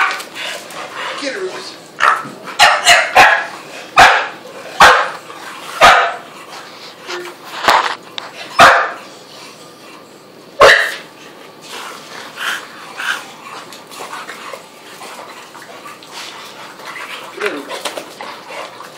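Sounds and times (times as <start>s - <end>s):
dog barking: 2.0s - 5.2s, 5.8s - 6.2s, 8.6s - 9.0s, 10.6s - 11.0s.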